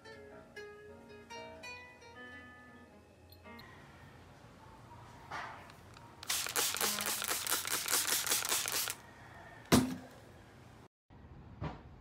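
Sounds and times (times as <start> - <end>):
spray bottle hissing: 6.2 - 9.0.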